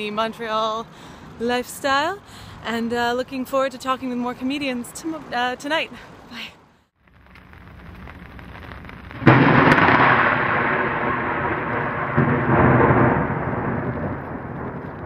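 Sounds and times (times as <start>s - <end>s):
thunder rumbling: 7.1s - 15.0s
loud thunderclap: 7.8s - 15.0s.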